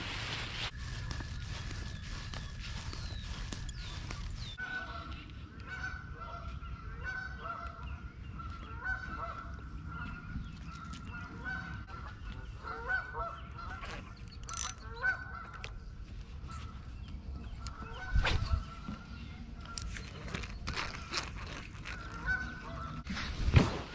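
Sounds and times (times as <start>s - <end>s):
geese honking: 4.4s - 10.2s, 11.0s - 13.8s, 14.9s - 15.7s, 22.0s - 23.1s.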